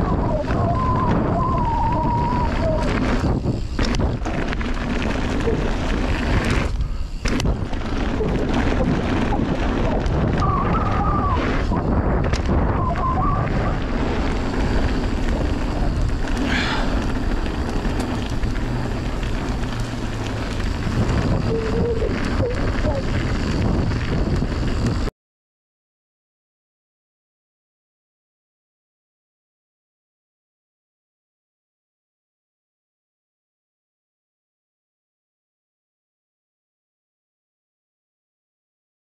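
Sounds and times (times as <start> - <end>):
mountain bike trail noise: 0.0 - 25.1
wind buffeting microphone: 0.0 - 25.1.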